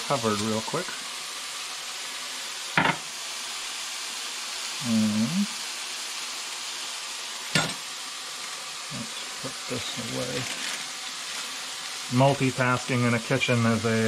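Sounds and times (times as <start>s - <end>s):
meat sizzling in a pan: 0.0s - 14.0s
person humming: 4.8s - 5.6s.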